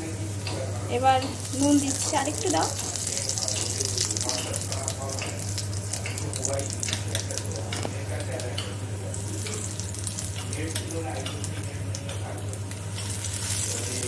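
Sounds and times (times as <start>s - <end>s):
garlic sizzling in hot oil: 0.0s - 14.0s
oil crackling and popping: 1.2s - 14.0s.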